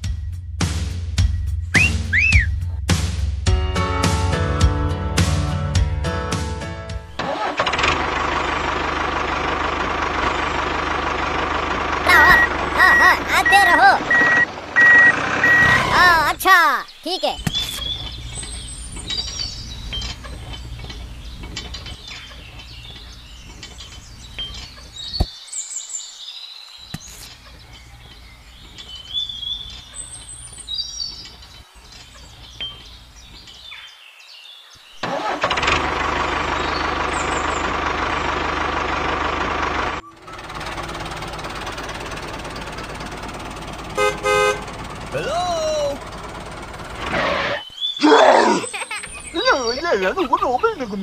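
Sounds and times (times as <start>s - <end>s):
birds chirping: 1.7s - 2.6s, 12.0s - 35.4s, 36.1s - 38.4s, 40.2s - 51.0s
loud steady engine noise: 7.2s - 16.0s, 35.0s - 47.6s
quick beeps: 12.2s - 15.9s.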